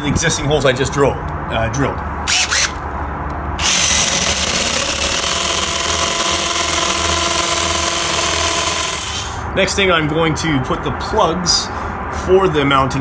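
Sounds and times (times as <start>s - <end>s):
cordless drill boring into brick: 2.3s - 2.8s, 3.6s - 9.4s.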